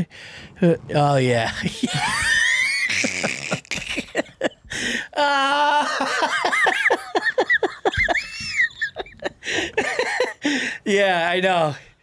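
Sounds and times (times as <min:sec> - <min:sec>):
men laughing: 0:01.4 - 0:10.7.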